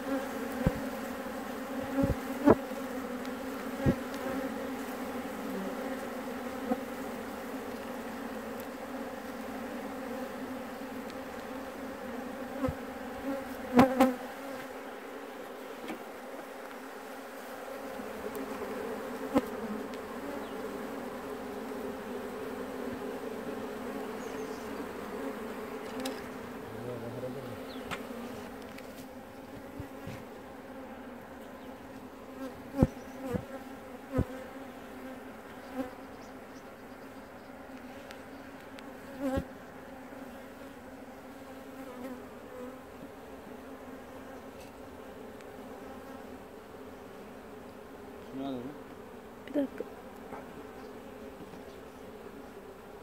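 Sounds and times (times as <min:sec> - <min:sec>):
honeybees buzzing: 0:00.0 - 0:53.0.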